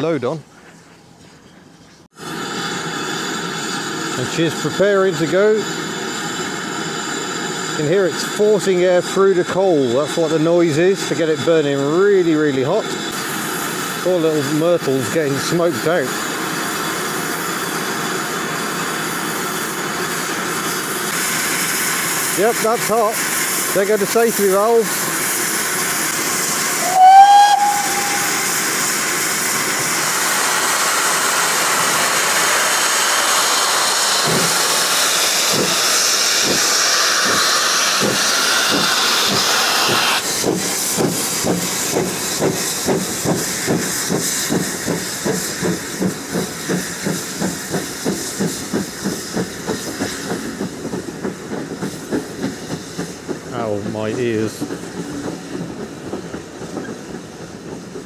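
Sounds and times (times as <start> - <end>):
locomotive exhaust chuffs: 1.1 - 58.0
steam safety valves hissing: 2.2 - 58.0
steam whistle blast: 26.8 - 28.8.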